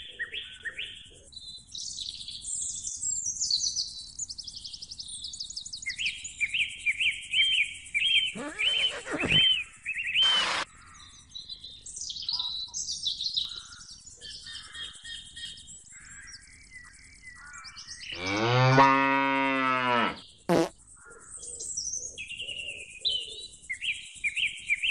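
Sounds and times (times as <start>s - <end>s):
small birds chirping and warbling: 0.0s - 18.7s, 20.0s - 24.9s
long low animal call: 8.4s - 9.6s.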